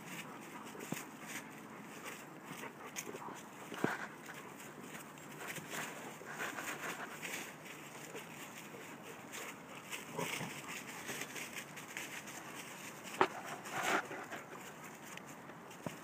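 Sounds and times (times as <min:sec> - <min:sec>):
paws rustling through leaves: 0:00.0 - 0:16.0
dogs growling: 0:01.9 - 0:11.4.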